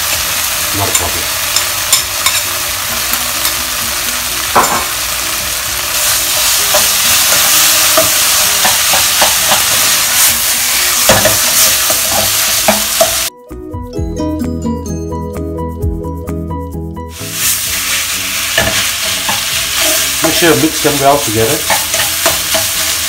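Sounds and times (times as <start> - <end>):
meat sizzling in hot oil: 0.0 - 13.3, 17.1 - 23.0
music: 0.0 - 23.0
spatula scraping a pan: 6.0 - 13.3, 17.3 - 23.0.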